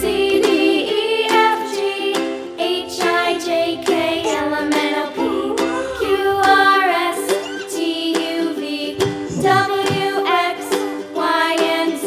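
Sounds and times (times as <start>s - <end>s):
song with singing voice and beat: 8.6s - 10.4s.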